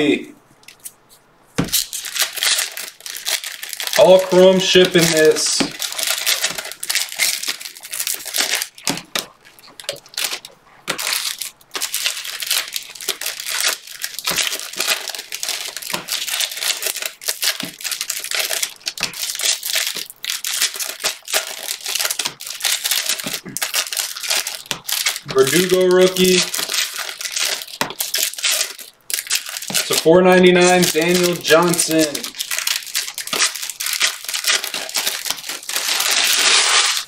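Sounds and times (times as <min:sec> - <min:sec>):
cards flipped through by hand: 0:00.6 - 0:02.0.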